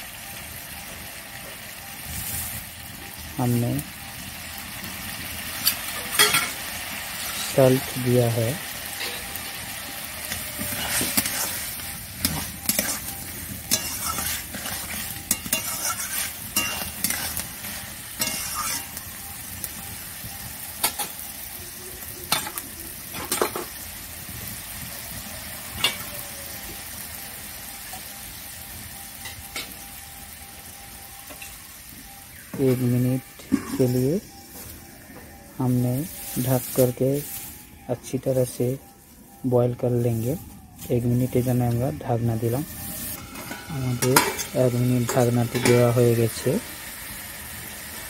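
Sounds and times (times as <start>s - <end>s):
potatoes sizzling in oil: 0.0s - 48.0s
spatula scraping and clinking pan: 10.3s - 19.0s, 42.9s - 45.9s.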